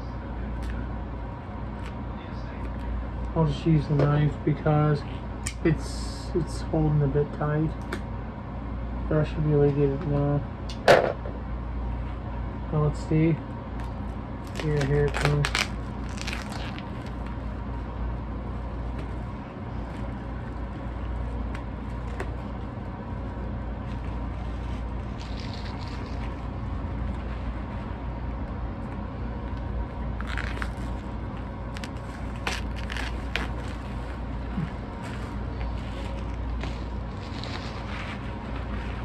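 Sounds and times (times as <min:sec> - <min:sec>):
low hum: 0:00.0 - 0:39.0
plastic shrink-wrap crinkling: 0:14.4 - 0:17.3, 0:30.2 - 0:39.0.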